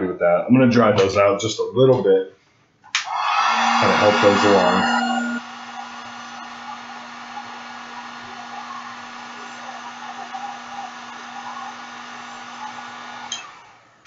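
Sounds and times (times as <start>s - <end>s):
hair dryer blowing: 3.0s - 14.0s.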